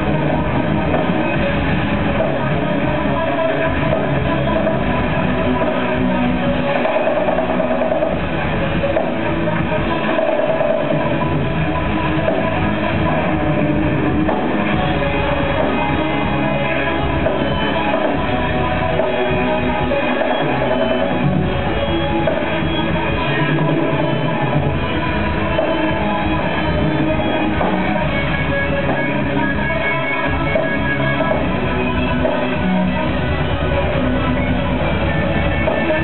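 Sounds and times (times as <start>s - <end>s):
drum kit: 0.0s - 36.0s
electric guitars: 0.0s - 36.0s.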